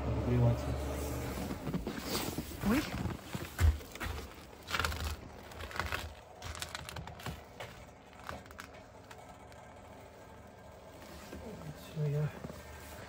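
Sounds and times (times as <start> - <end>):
rustling: 1.0 - 9.8.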